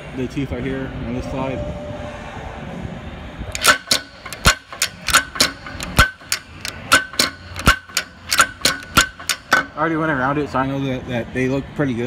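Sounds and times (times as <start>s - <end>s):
sharp metallic clicks: 3.5s - 9.8s.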